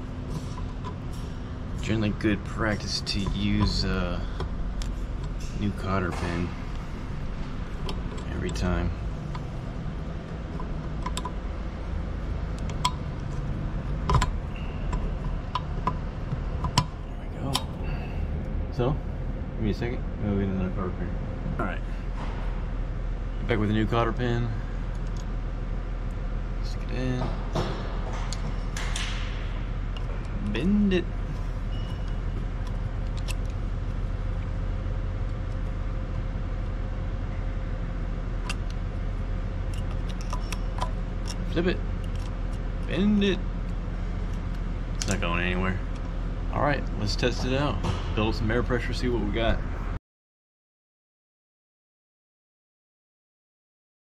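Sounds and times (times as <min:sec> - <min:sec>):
steady low hum: 0:00.0 - 0:50.0.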